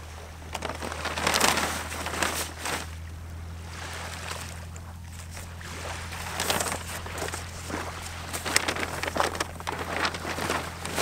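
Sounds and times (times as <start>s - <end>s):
steady low hum: 0.0s - 11.0s
paper packaging rustling: 0.5s - 3.0s, 6.1s - 11.0s.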